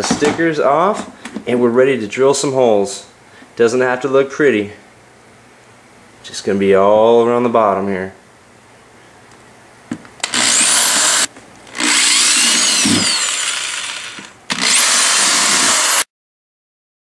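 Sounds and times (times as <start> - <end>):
electric drill whining: 10.2 - 16.1.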